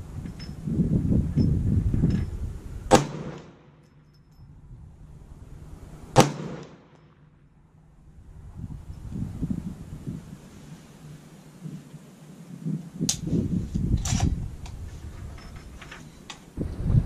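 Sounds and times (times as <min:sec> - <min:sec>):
wind rumble on microphone: 0:00.0 - 0:03.4, 0:04.0 - 0:06.2, 0:07.6 - 0:17.0
rifle shots: 0:02.9 - 0:03.7, 0:06.1 - 0:06.9.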